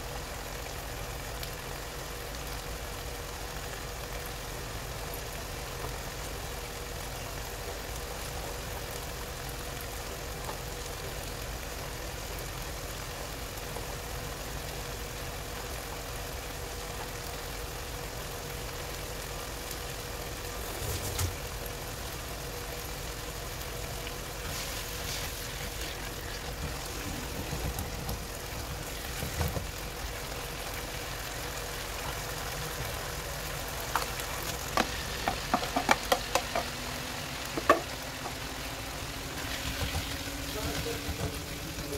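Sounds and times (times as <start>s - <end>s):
kitchen fan humming: 19.8s - 41.9s.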